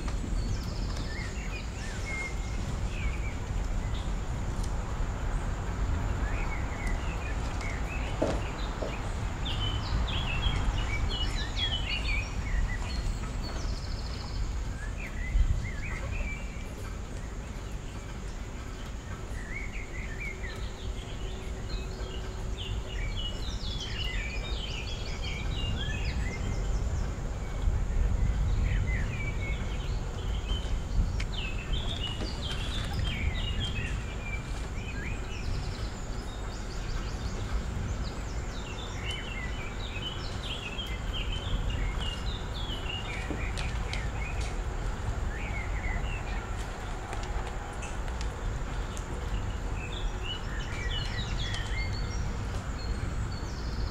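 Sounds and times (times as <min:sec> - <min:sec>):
birds chirping: 0:00.0 - 0:53.9.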